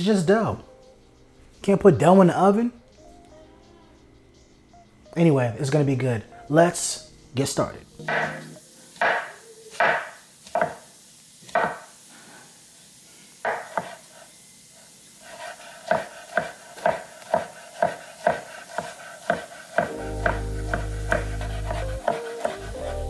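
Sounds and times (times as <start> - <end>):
knife chopping on cutting board: 9.0 - 10.8, 11.5 - 11.9, 13.4 - 14.0, 15.3 - 22.7.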